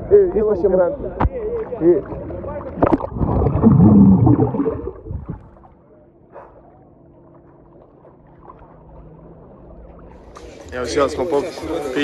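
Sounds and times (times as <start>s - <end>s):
muffled underwater hush: 1.1s - 10.7s
water bubbling and churning: 1.5s - 5.9s, 6.6s - 10.6s.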